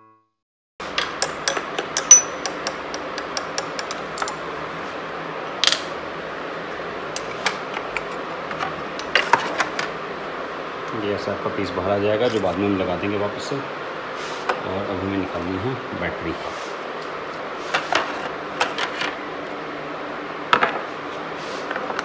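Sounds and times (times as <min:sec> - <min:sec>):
spanner metallic clicks: 0:01.0 - 0:04.4.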